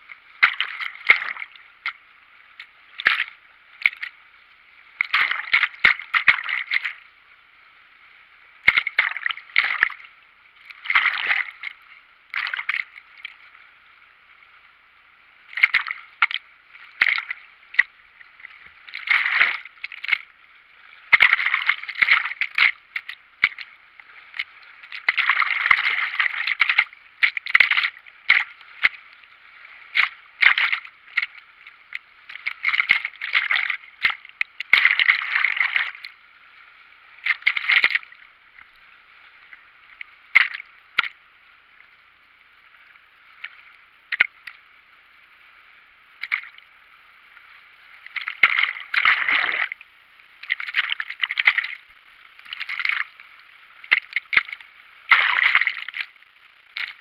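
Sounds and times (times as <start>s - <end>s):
river water splashing over camera: 0.0s - 7.2s, 8.5s - 13.8s, 15.3s - 41.2s, 46.0s - 57.0s
faint rush of water: 0.0s - 57.0s.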